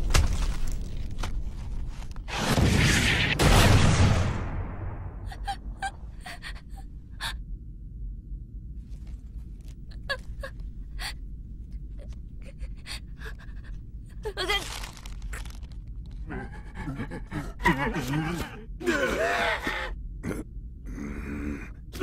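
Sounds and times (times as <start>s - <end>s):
low steady rumble: 3.8s - 18.8s.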